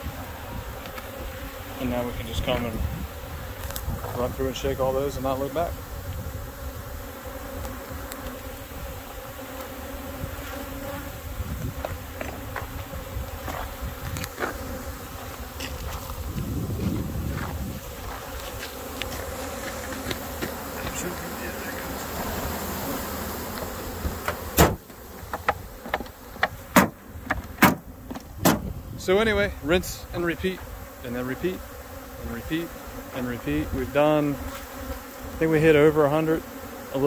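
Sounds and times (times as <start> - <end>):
bees buzzing: 0.0 - 37.0
sharp knocks: 24.0 - 28.7.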